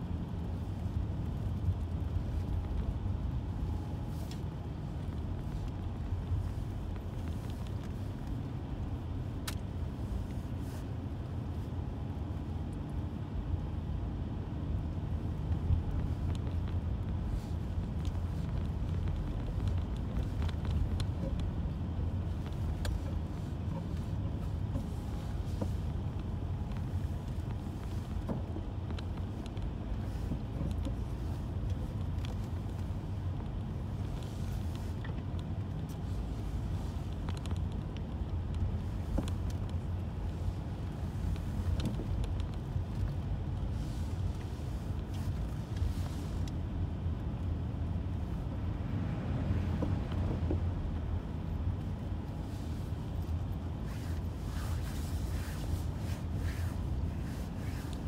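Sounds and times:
car driving rumble: 0.0 - 58.0.

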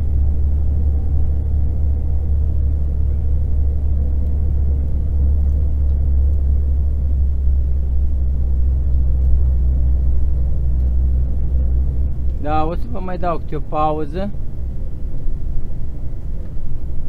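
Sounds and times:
car engine and tyre rumble: 0.0 - 17.0.

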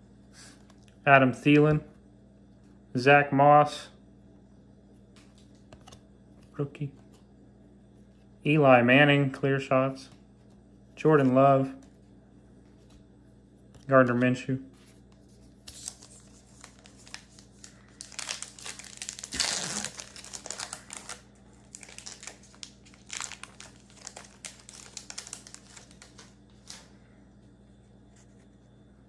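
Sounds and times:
foil wrapper crinkling and tearing: 15.6 - 26.9.

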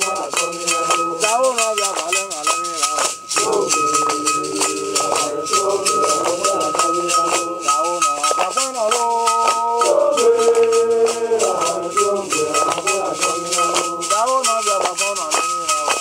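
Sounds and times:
hand rattle beat: 0.0 - 16.0
group of voices chanting: 3.4 - 8.0, 9.4 - 14.1.

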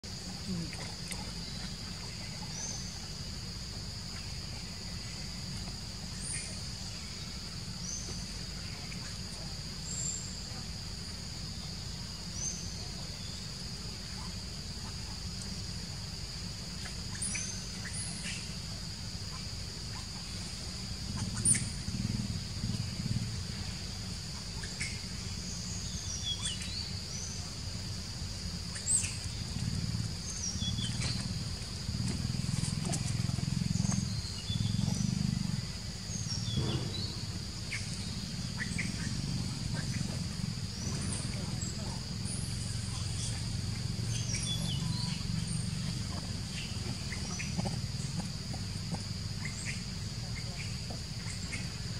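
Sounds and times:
birds chirping: 28.6 - 51.8
low rumble: 29.3 - 48.1.

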